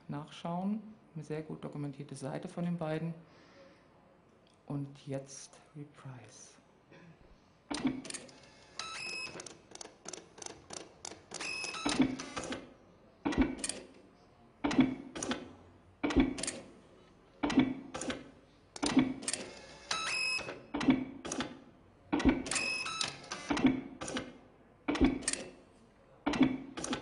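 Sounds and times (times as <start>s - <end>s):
dot-matrix printer chatter: 7.7s - 14.0s, 17.4s - 20.6s, 21.2s - 25.6s.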